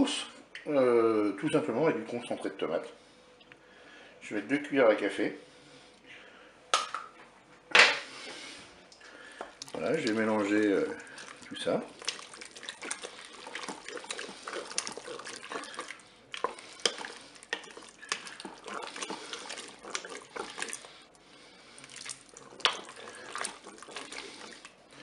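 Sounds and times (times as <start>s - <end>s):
spoon stirring thick stew: 9.2s - 25.0s.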